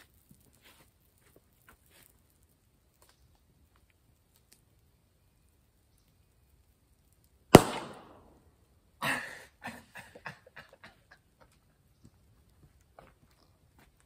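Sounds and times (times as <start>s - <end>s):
crackling pops: 0.0s - 5.0s, 5.8s - 8.4s
loud sharp bang in campfire: 7.6s - 8.3s.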